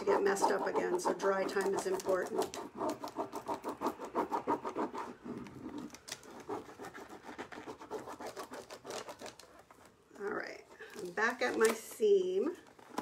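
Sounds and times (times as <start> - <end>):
fingers rubbing on paper: 0.0 - 9.9.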